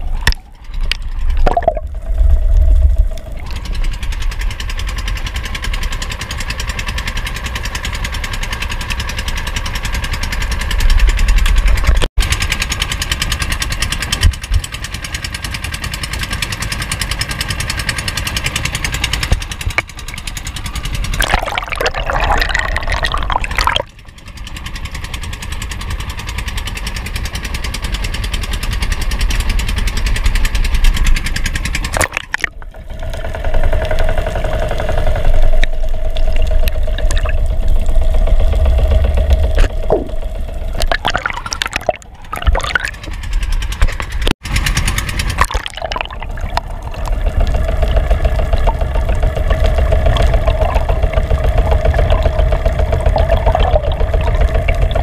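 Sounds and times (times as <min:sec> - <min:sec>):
muffled underwater wash: 0:00.0 - 0:12.0, 0:17.9 - 0:24.1, 0:28.9 - 0:44.3, 0:45.1 - 0:55.0
boat engine running: 0:00.0 - 0:55.0
splash into water: 0:21.1 - 0:23.9, 0:31.9 - 0:32.6, 0:40.8 - 0:43.0, 0:45.3 - 0:48.8.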